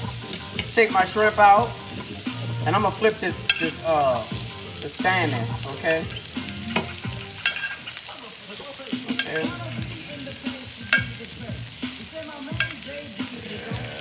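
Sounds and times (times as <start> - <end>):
fish sizzling in a grill pan: 0.0 - 14.0
metal utensil clicking on pan: 3.4 - 9.8, 10.8 - 11.3, 12.5 - 12.9.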